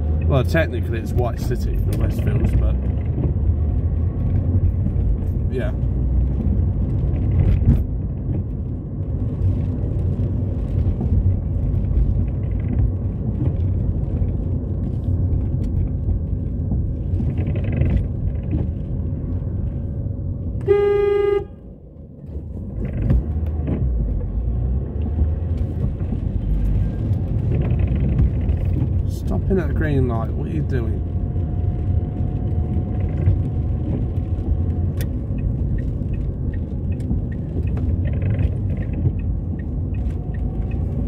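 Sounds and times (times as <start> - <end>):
road and engine noise in car: 0.0 - 41.0
car horn toot: 20.6 - 21.7.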